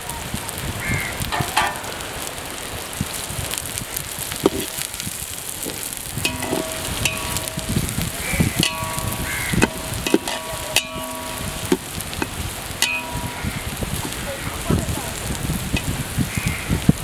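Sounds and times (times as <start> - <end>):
onions sizzling in oil: 0.0 - 17.0
pot ringing: 6.2 - 14.3.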